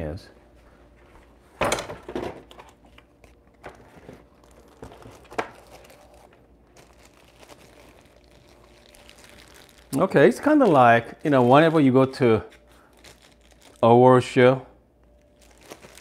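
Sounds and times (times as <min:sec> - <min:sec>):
plastic bag crinkling: 0:03.2 - 0:14.3, 0:15.2 - 0:16.0.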